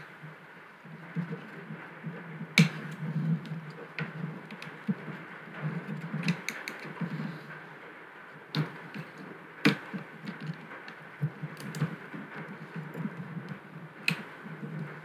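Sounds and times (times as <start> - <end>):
screwdriver clicking and scraping metal: 5.8 - 7.0.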